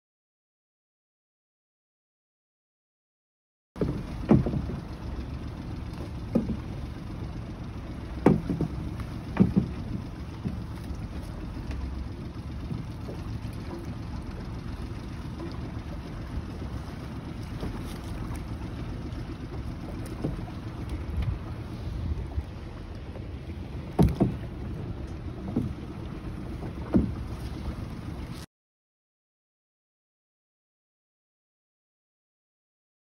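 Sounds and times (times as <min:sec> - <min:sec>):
gear knocking on hull: 0:03.8 - 0:28.5
wind and water rumble: 0:03.8 - 0:28.5.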